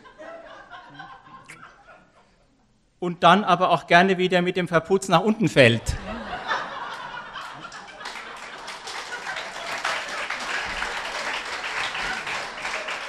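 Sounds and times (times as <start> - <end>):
audience applauding: 6.5 - 13.0.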